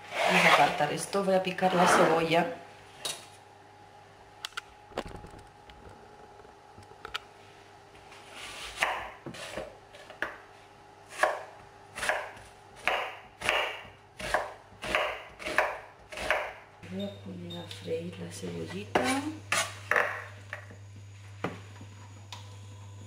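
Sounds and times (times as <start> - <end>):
knife chopping on wooden board: 11.2 - 16.6.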